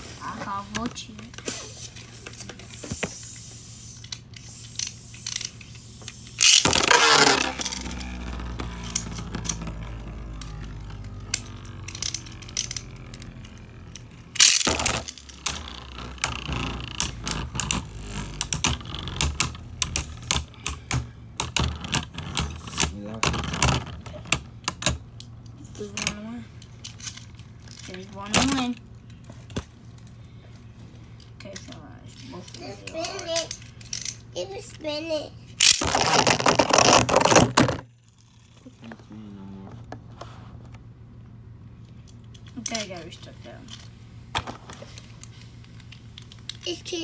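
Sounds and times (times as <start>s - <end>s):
spinning tops clacking together: 3.4s - 9.6s, 10.2s - 16.1s
spinning top launch whirr: 4.0s - 19.7s.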